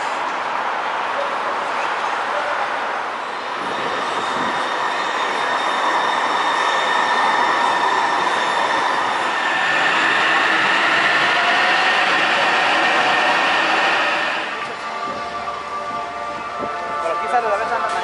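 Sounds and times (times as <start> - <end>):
train wheels on rails: 0.0 - 16.9.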